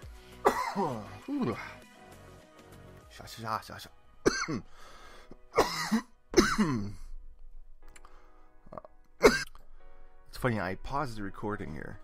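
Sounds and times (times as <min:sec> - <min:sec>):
quiet background music: 0:00.0 - 0:12.0
man coughing hard: 0:00.4 - 0:01.7, 0:04.3 - 0:04.7, 0:05.5 - 0:07.1, 0:09.2 - 0:09.6.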